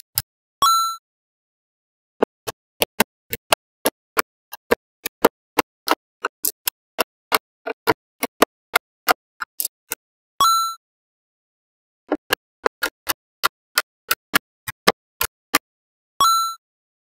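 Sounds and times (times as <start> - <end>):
magnetic balls clicking: 2.2 - 10.0, 12.1 - 15.6.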